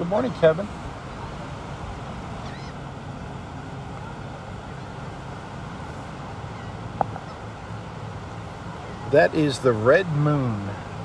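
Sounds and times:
surf: 0.0 - 11.0
wind: 0.0 - 11.0
faint bird chirp: 2.4 - 2.9, 6.4 - 7.6.

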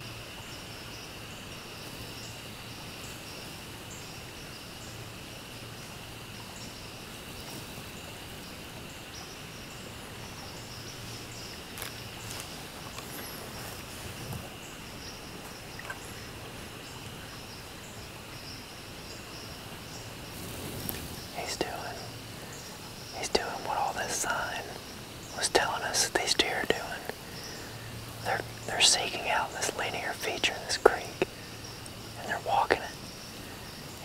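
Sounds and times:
insects calling: 0.0 - 34.0
faint snaps and rustles: 11.7 - 14.5.

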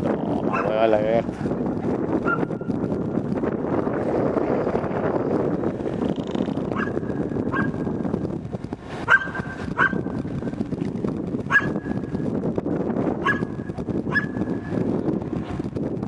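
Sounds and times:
dog barking: 0.5 - 0.8, 6.8 - 7.8, 9.1 - 10.0, 11.5 - 11.8, 13.2 - 13.5, 14.1 - 14.4.

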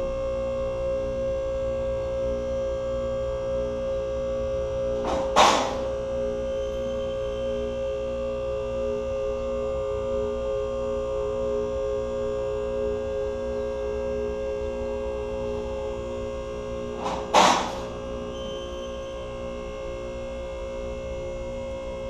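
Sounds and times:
hydraulic pump motor humming: 4.2 - 10.2, 11.6 - 21.4
loud clack: 5.0 - 5.9, 17.0 - 17.9.

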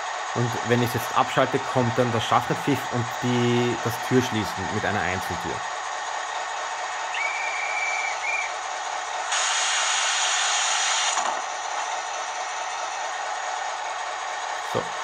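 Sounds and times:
conductor's whistle from small speaker: 7.1 - 8.6.

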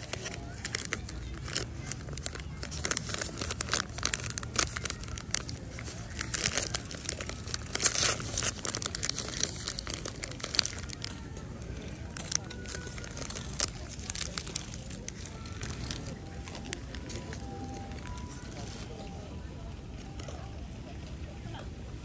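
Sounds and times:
food wrapper crinkling and tearing: 0.0 - 19.1.

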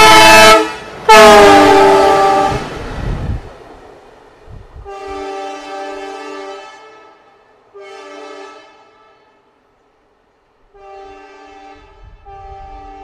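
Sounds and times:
locomotive horn blasts: 0.0 - 2.7, 4.8 - 9.5, 10.7 - 13.0.

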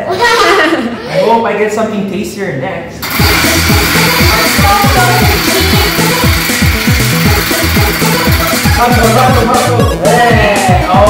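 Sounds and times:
electronic music with kick drums: 3.1 - 11.0.

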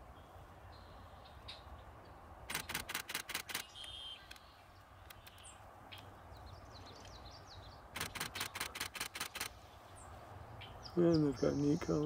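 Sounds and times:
small birds chirping: 0.0 - 12.0
camera shutter bursts: 2.5 - 4.4, 7.9 - 9.6.

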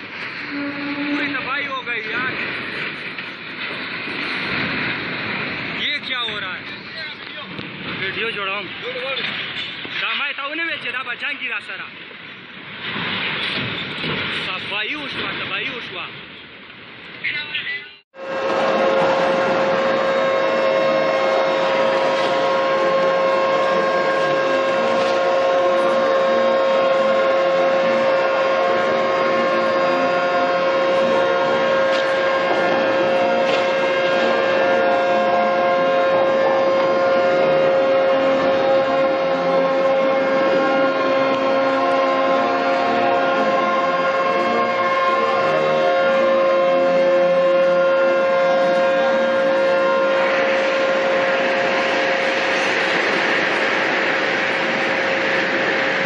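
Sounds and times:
horn long steady note: 0.5 - 1.6, 18.2 - 55.9
loud rushing noise: 49.4 - 56.0.

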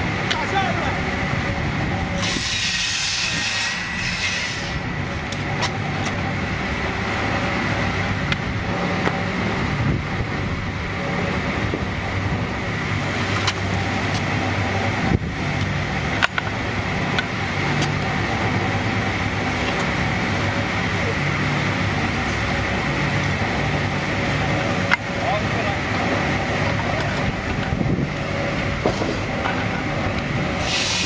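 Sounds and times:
sawing machinery humming: 0.0 - 31.0
high hiss: 30.6 - 31.0.

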